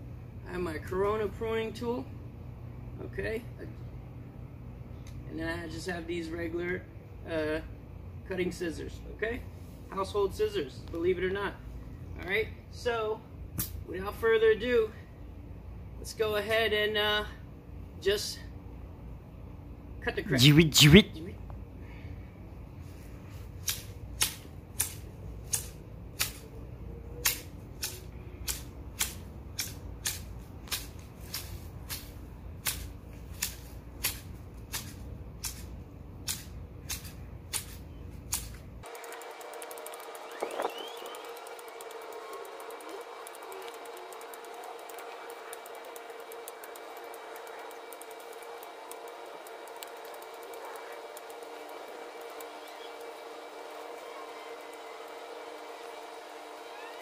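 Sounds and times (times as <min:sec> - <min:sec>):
faint hum with held tones: 0:00.0 - 0:57.0
shears snipping shrub branches: 0:23.5 - 0:26.5, 0:27.2 - 0:56.0.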